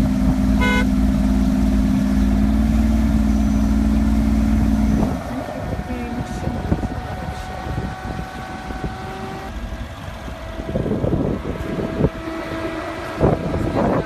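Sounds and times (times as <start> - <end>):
engine humming: 0.0 - 14.0
wind buffeting microphone: 4.2 - 14.0.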